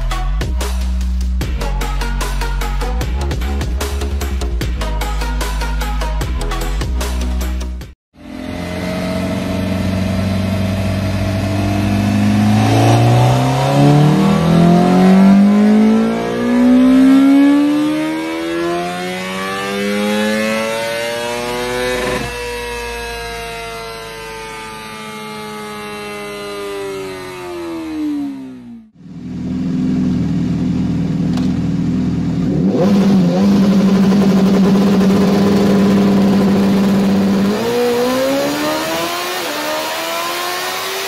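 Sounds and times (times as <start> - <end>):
motorcycle engine revving: 8.2 - 41.0.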